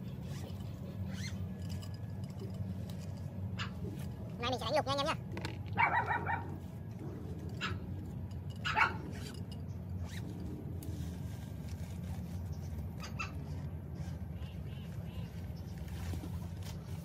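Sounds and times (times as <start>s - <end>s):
bag rustling and zip scrapes: 9.1s - 14.3s.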